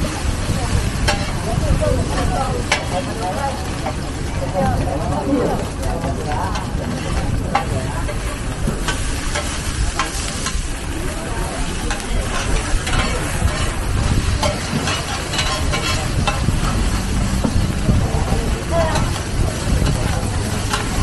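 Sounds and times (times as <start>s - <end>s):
oil sizzling: 0.0s - 5.0s, 5.6s - 21.0s
metal spatulas scraping a wok: 1.0s - 1.4s, 11.8s - 17.5s
low rumble: 15.6s - 20.6s.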